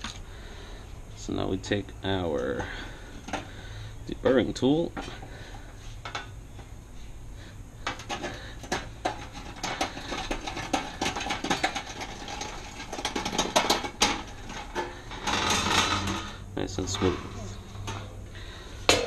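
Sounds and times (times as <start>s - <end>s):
metal scraping and clicks: 7.9s - 17.2s.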